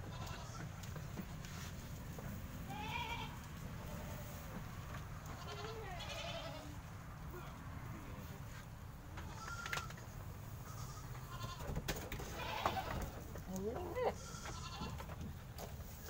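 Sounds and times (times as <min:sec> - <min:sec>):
goats bleating: 0:00.0 - 0:00.8, 0:02.7 - 0:04.4, 0:05.2 - 0:08.3, 0:09.2 - 0:09.9, 0:10.6 - 0:15.1.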